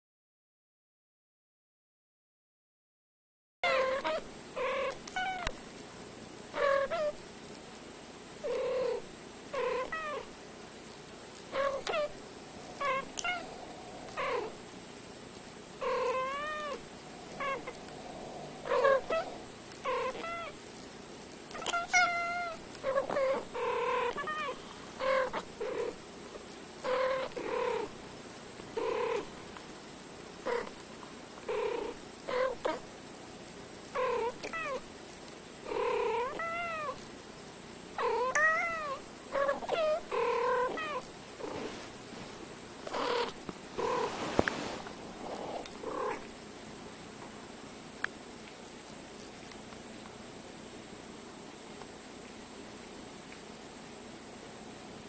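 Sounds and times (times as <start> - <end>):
cats chirping meows and trills: 3.6 - 5.6, 6.5 - 7.2, 8.4 - 10.3, 11.5 - 14.6, 15.8 - 17.9, 18.5 - 20.6, 21.5 - 26.0, 26.8 - 27.9, 31.6 - 32.8, 34.0 - 34.9, 35.7 - 37.0, 38.0 - 41.1.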